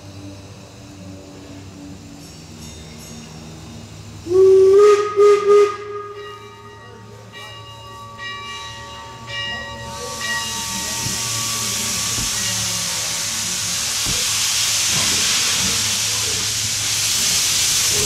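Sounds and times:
steam hissing: 0.0 - 6.5, 9.4 - 18.0
steam locomotive whistle: 4.2 - 6.8.

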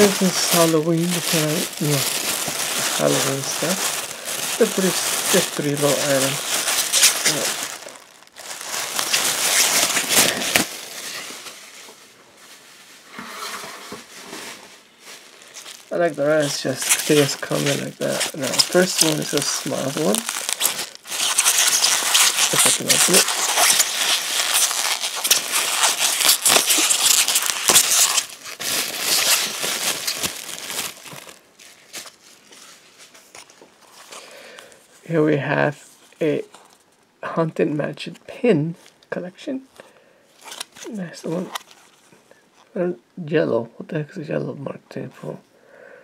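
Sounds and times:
bubble wrap crackling: 0.0 - 34.2, 40.4 - 42.0
plastic bag crinkling: 0.0 - 34.8, 40.4 - 42.0.

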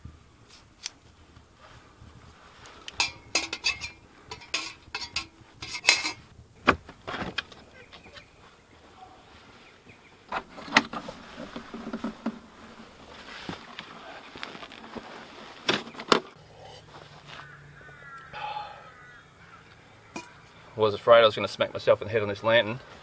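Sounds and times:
objects knocking on dirt: 2.9 - 8.3, 10.3 - 13.8, 15.6 - 16.3
clothing rustle: 5.6 - 16.0
footsteps: 10.4 - 15.9.

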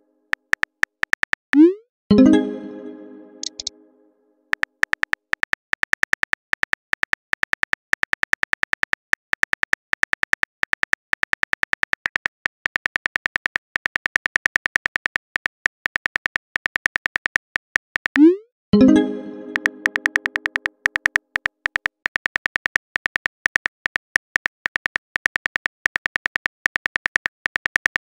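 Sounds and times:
phone keyboard typing clicks: 0.3 - 1.4, 3.4 - 3.7, 4.5 - 18.4, 19.4 - 28.0.

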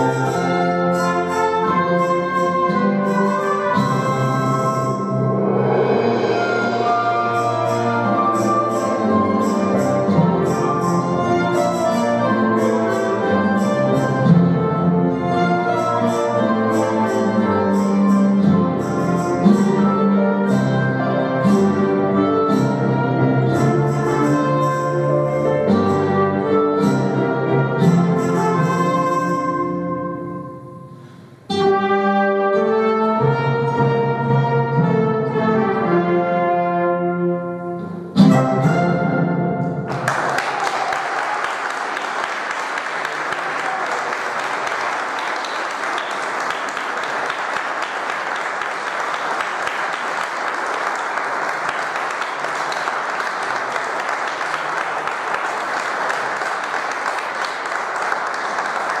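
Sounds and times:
instrumental ensemble playing: 0.0 - 40.3
audience applause: 39.9 - 59.0.

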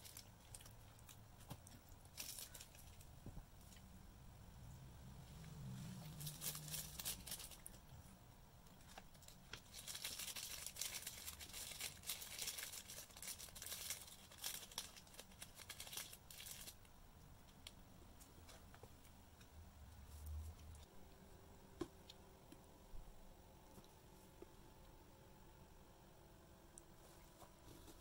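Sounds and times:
paper wrapping rustling: 0.0 - 3.8, 6.0 - 7.8, 8.8 - 16.8
plastic bag crinkling: 0.0 - 3.8, 6.0 - 7.9, 8.8 - 16.8.

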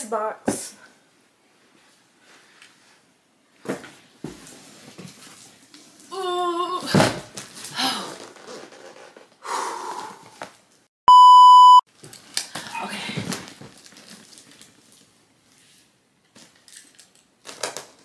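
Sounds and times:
person straining vocal sound: 6.1 - 7.1
censor bleep tone: 11.1 - 11.8.

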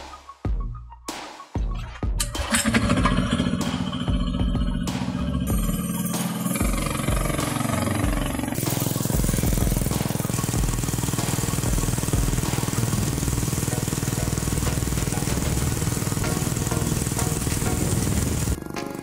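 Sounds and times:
small engine pulsing: 2.2 - 18.9
engine pulling trike along road: 2.5 - 3.8, 6.4 - 18.7.

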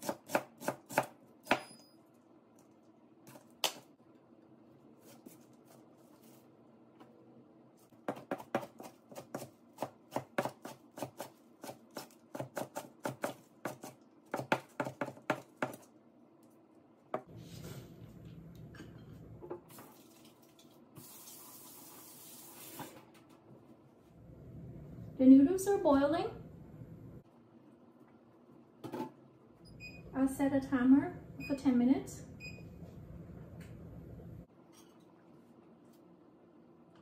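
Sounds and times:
knife chopping herbs: 7.9 - 15.9
low hum: 17.3 - 19.4, 24.1 - 27.2, 29.7 - 34.5.

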